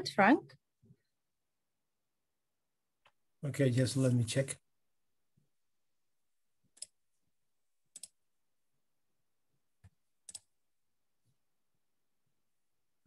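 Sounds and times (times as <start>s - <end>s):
computer mouse clicks: 6.7s - 7.0s, 7.9s - 8.2s, 9.8s - 10.5s.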